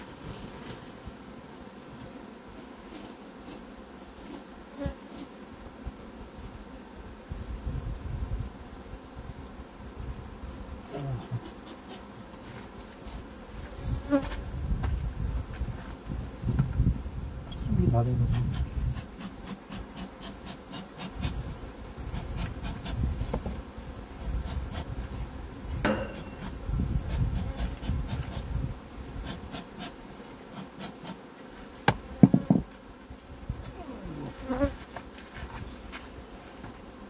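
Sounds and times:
honeybees buzzing: 0.0s - 37.0s
sharp knocks: 25.8s - 26.5s.

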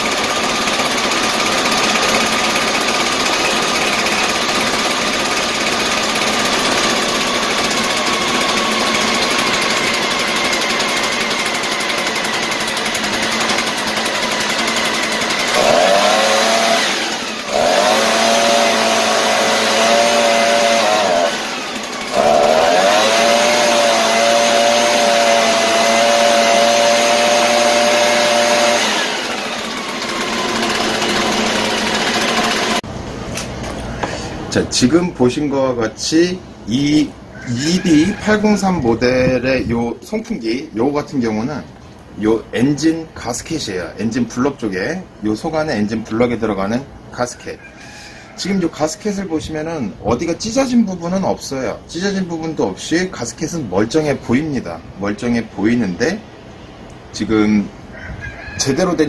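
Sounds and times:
leaf blower engine idling and revving: 0.0s - 34.2s.

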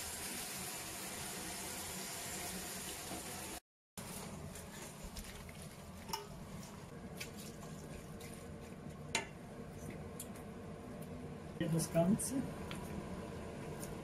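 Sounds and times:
soft wet stirring in a pot: 4.0s - 11.3s.

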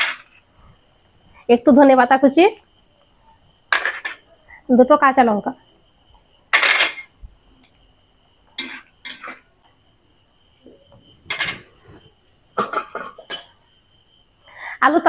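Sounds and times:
utensil scraping a pan: 11.2s - 12.1s.

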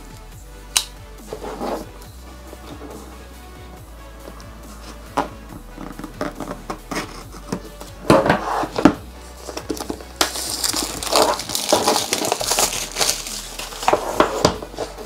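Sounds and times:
background music: 0.0s - 15.0s
cardboard scraping and rustling: 1.3s - 2.0s, 4.8s - 15.0s.

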